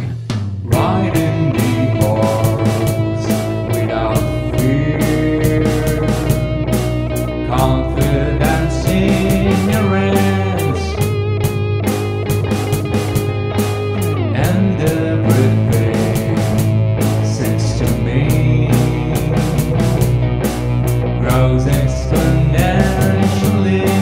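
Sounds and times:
bass guitar: 0:00.0 - 0:24.0
steady drum beat: 0:00.0 - 0:24.0
electric guitar sliding lines: 0:00.7 - 0:24.0.

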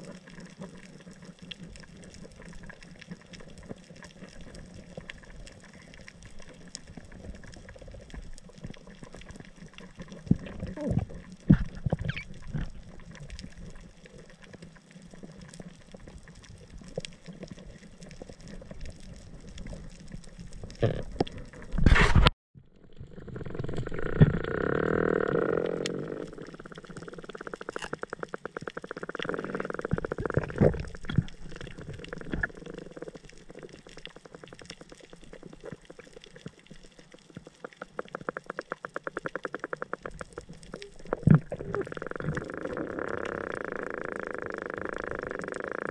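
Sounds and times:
sharp clicks and crackles: 0:00.0 - 0:45.9.

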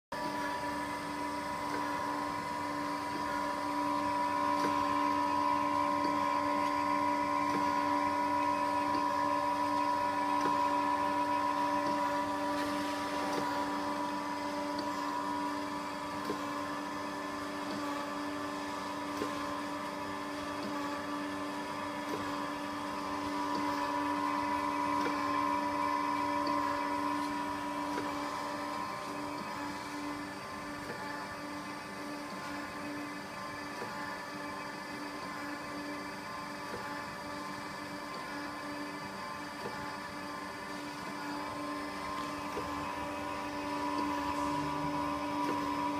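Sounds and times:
high machine whine: 0:00.1 - 0:45.9
surface grinder running: 0:41.2 - 0:45.9.

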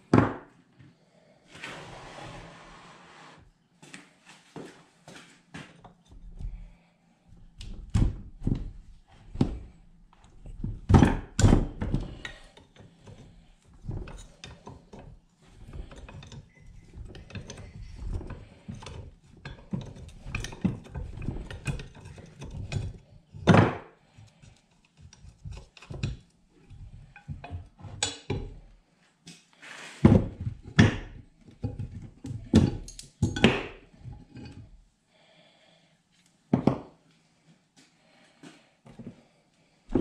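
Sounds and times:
metallic clicks and clunks of tools: 0:32.6 - 0:33.8.

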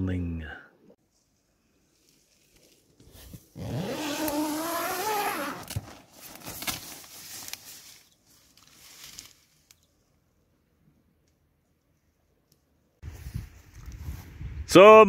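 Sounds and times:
zipper pulled open: 0:03.2 - 0:06.0.

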